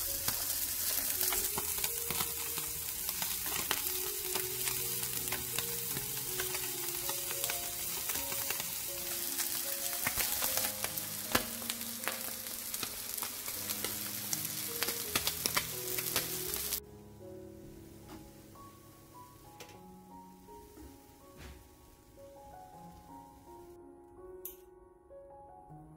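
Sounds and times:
fish sizzling in hot oil: 0:00.0 - 0:16.8.

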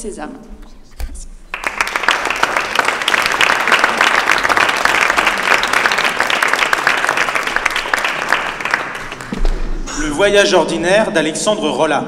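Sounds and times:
audience applauding: 0:01.5 - 0:09.8.

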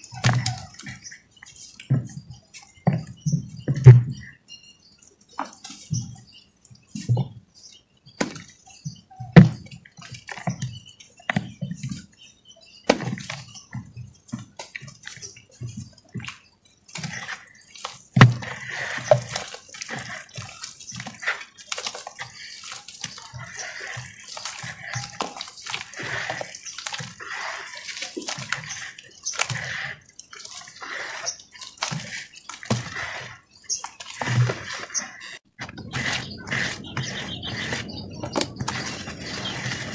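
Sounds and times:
wet mud squelching: 0:00.0 - 0:02.2, 0:14.3 - 0:39.9.

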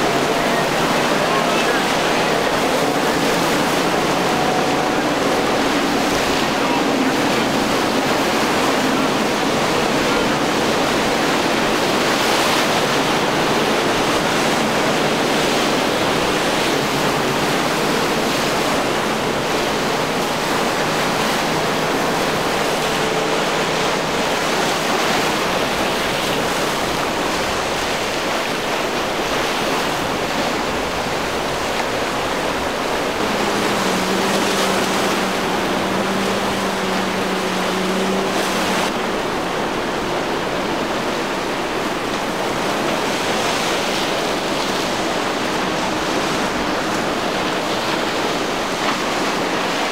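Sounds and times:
choppy surf and water: 0:00.0 - 0:49.9
outboard motors droning: 0:00.0 - 0:49.9
lower engine note: 0:30.7 - 0:40.6.

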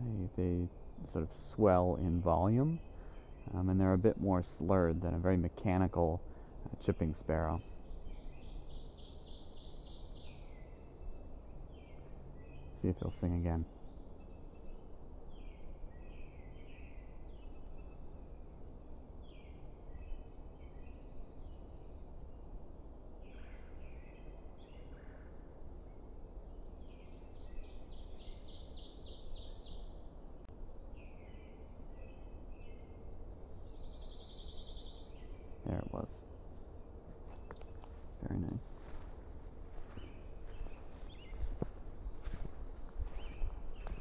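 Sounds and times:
small birds chirping: 0:00.0 - 0:18.5, 0:19.2 - 0:44.0
bird singing a trill: 0:00.0 - 0:18.6, 0:19.2 - 0:36.3, 0:37.3 - 0:44.0
low background hiss: 0:00.0 - 0:44.0.

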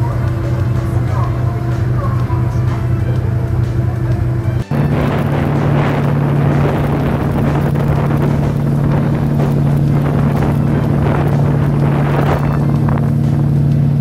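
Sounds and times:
ferry engines droning: 0:00.0 - 0:14.0
wind buffeting microphone: 0:00.0 - 0:14.0.

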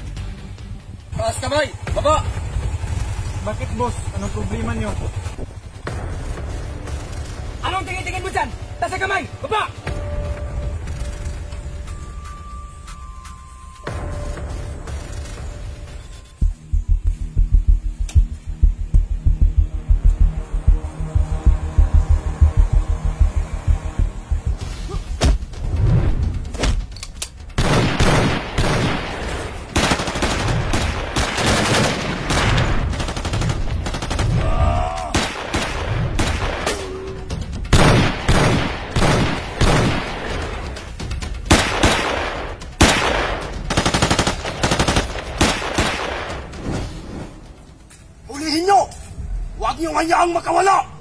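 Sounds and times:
background music: 0:00.0 - 0:51.0
rapid gunfire bursts: 0:27.6 - 0:34.4, 0:41.4 - 0:46.4.

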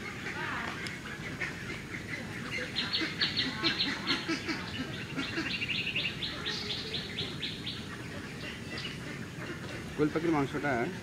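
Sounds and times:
bird chirping: 0:02.6 - 0:10.4.

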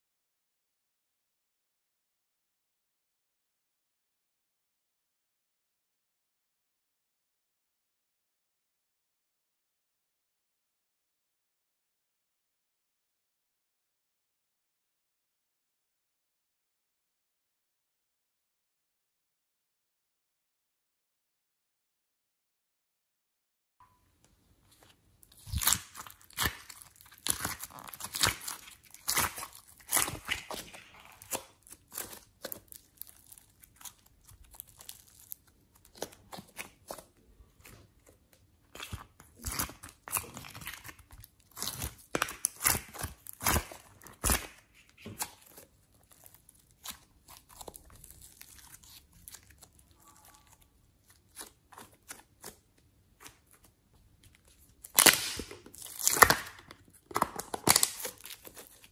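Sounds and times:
slime crackling and popping: 0:25.2 - 0:37.8, 0:38.7 - 0:52.6, 0:54.5 - 0:58.9.

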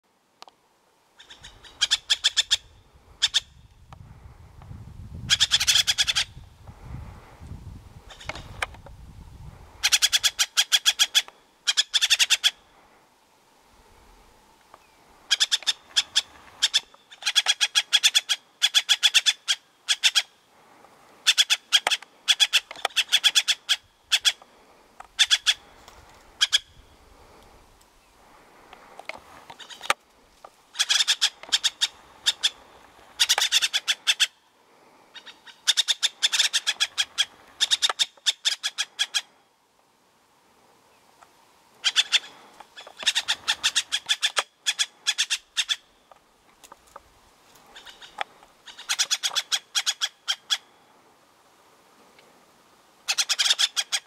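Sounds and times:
jay harsh rattling calls: 0:01.2 - 0:03.5, 0:05.3 - 0:06.4, 0:08.1 - 0:08.6, 0:09.8 - 0:12.6, 0:15.3 - 0:20.3, 0:21.2 - 0:24.5, 0:25.2 - 0:26.9, 0:29.6 - 0:30.0, 0:30.7 - 0:34.4, 0:35.1 - 0:39.3, 0:41.8 - 0:45.9, 0:47.6 - 0:50.7, 0:53.0 - 0:54.0.

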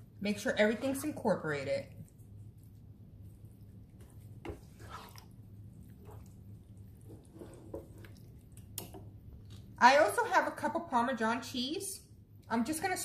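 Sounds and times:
steady low hum: 0:00.0 - 0:10.0
wooden spoon stirring thick sauce: 0:00.3 - 0:09.8.

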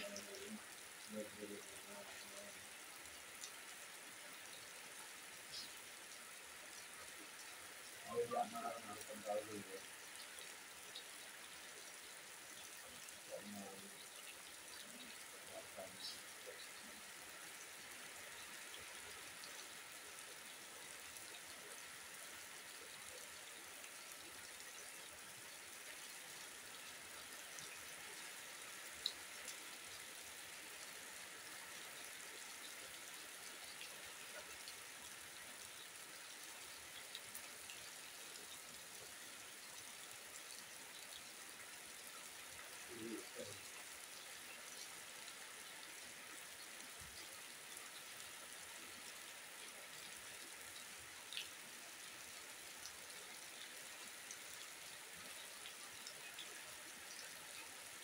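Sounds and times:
rain falling on foliage: 0:00.0 - 0:58.0.

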